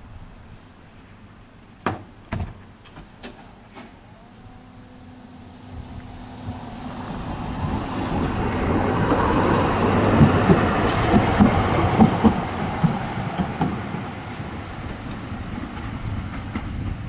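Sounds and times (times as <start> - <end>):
wheels clacking over rail joints: 2.6 - 17.0
tram rolling past: 4.1 - 17.0.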